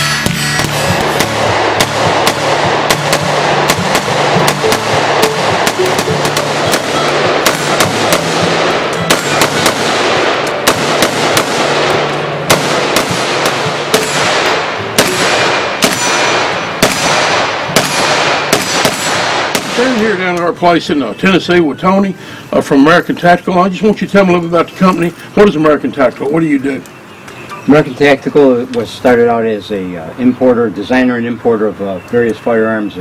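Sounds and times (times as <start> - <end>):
background music: 0.0 - 22.0
rifle gunfire: 0.6 - 20.3.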